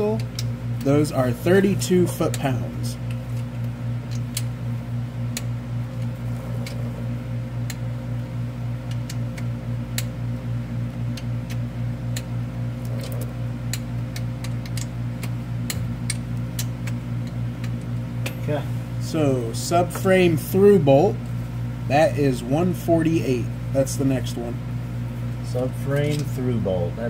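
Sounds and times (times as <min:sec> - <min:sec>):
pulsing low machine hum: 0:00.0 - 0:27.0.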